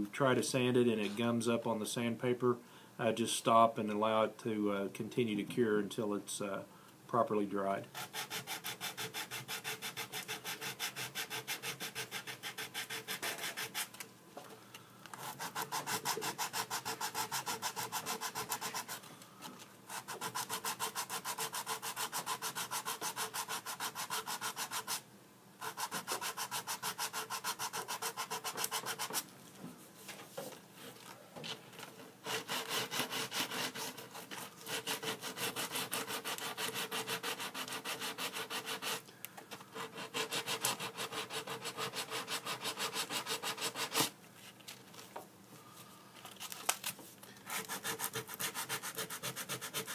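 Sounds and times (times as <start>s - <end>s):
sanding sponge scratching: 8.0s - 13.9s, 15.2s - 19.0s, 19.9s - 25.0s, 25.6s - 29.2s, 32.2s - 39.0s, 39.8s - 44.1s, 47.5s - 49.9s.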